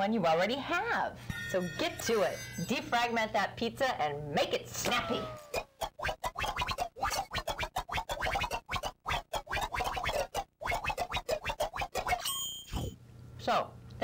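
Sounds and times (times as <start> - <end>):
sped-up scratchy chatter: 5.6 - 12.2.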